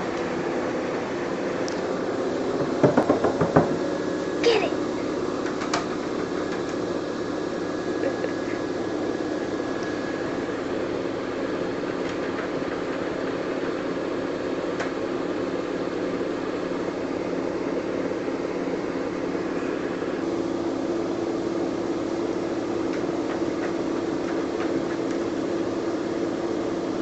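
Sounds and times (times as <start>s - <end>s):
washing machine humming: 0.0s - 27.0s.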